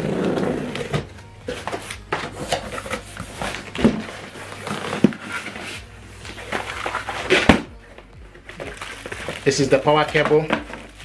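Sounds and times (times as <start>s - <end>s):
cardboard scraping and rustling: 0.0s - 7.7s.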